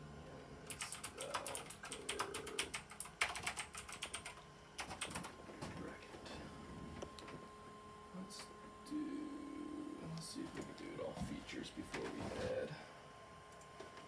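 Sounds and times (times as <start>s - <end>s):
keyboard typing: 0.7s - 5.3s.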